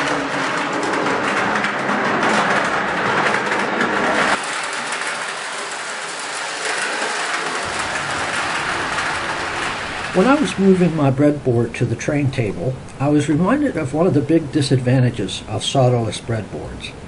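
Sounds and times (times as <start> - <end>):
toy train wheels clattering: 0.0 - 12.1.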